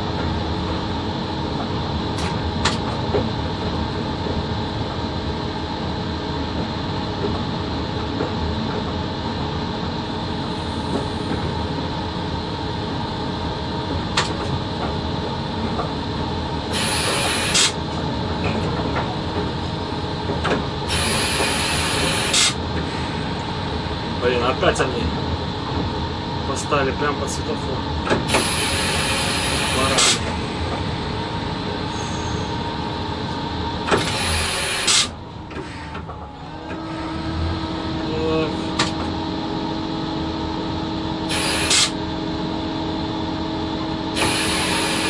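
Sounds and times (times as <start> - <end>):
electric locomotive hum and rumble: 0.0 - 45.0
air hissing: 16.7 - 17.8, 20.9 - 23.0, 28.3 - 30.4, 34.0 - 36.0, 41.3 - 41.9, 44.2 - 45.0.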